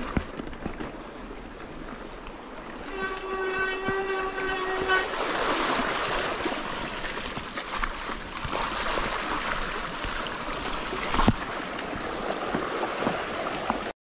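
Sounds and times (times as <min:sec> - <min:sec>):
river water rushing and splashing: 0:00.0 - 0:13.9
steady high squeal: 0:02.9 - 0:06.0.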